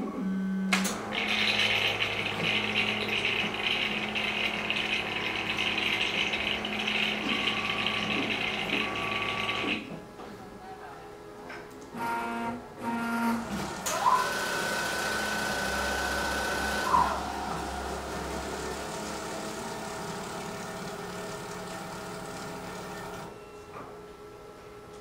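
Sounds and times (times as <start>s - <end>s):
motor whine: 0.0s - 9.9s, 13.4s - 23.3s
lab instrument motor running: 0.9s - 9.9s, 12.0s - 23.3s.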